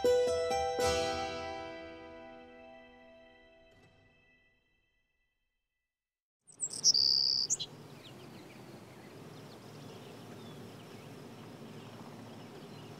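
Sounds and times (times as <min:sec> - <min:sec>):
faint bird chirps: 0:06.5 - 0:11.2.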